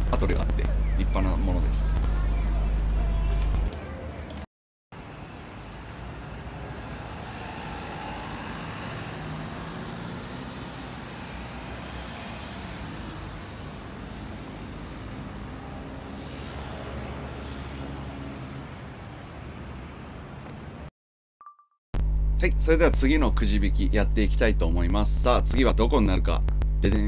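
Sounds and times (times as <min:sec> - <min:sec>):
cars and buses passing: 0:02.1 - 0:20.9.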